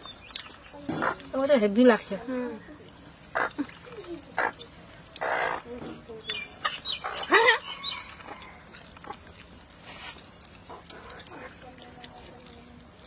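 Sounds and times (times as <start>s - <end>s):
slurping and chewing: 0.0s - 13.0s
lip smacks: 2.7s - 12.7s.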